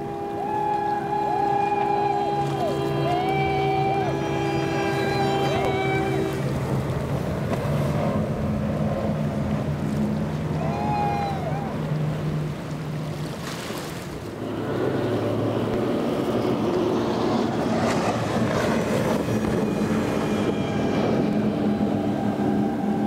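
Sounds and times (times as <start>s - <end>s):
wind on microphone: 0.0s - 7.2s, 14.5s - 23.0s
boat engine drone: 0.0s - 23.0s
hull slap and spray: 0.0s - 23.0s.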